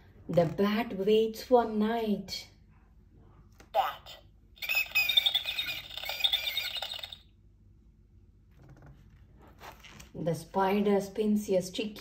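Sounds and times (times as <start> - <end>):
toy speaker bat squeaks: 4.6 - 7.3.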